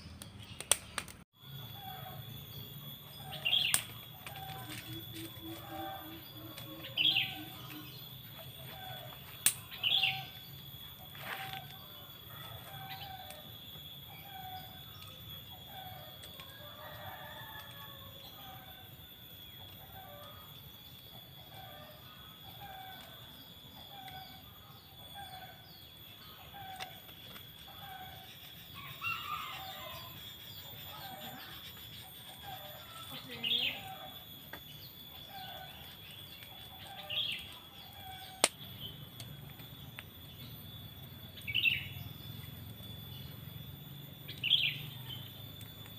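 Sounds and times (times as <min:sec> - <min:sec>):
sharp clicks: 0:00.0 - 0:01.2
birds calling: 0:00.0 - 0:45.9
high-pitched whine: 0:00.0 - 0:45.9.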